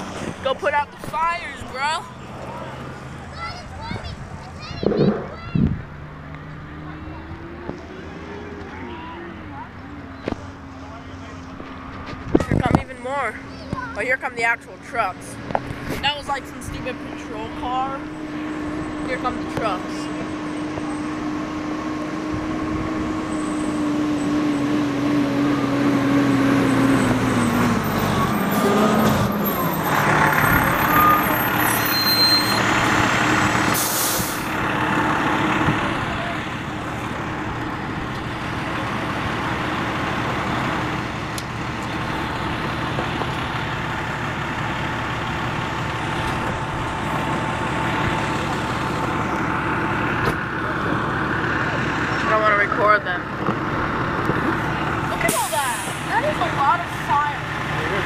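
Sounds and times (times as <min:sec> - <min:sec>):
fire engines driving past: 0:00.0 - 0:58.0
siren tone sliding down: 0:29.5 - 0:32.7
air brakes hissing: 0:33.7 - 0:34.6, 0:55.2 - 0:56.2.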